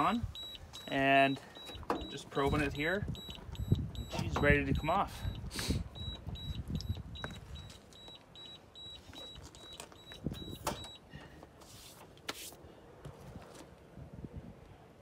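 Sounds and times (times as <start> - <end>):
thermometer alarm beeping: 0.0 - 11.1.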